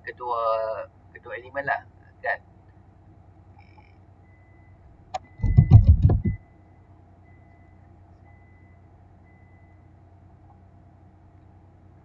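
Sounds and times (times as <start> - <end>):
low thudding and rattling knocks: 5.4 - 6.4.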